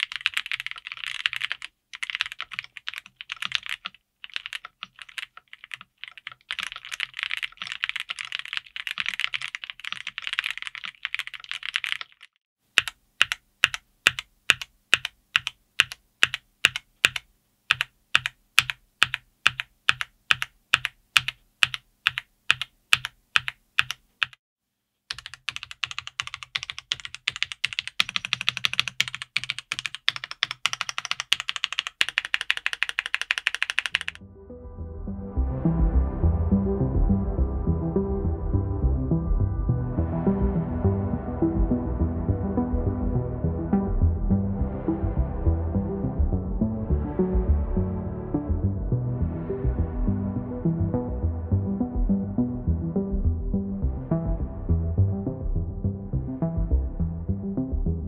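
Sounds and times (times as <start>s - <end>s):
mechanical keyboard typing: 0.0s - 24.4s, 25.1s - 34.2s.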